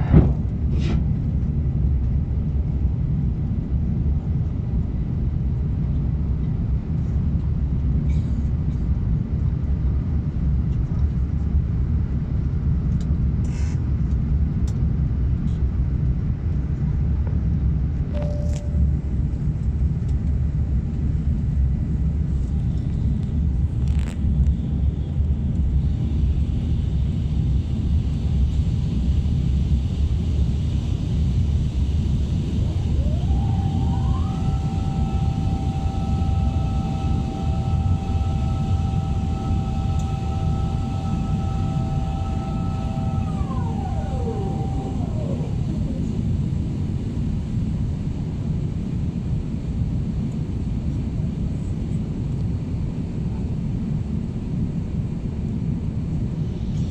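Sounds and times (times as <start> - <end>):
mechanical whine: 0.0 - 2.2, 18.1 - 19.4, 22.4 - 49.3, 55.9 - 56.9
airliner cabin rumble: 0.0 - 56.9.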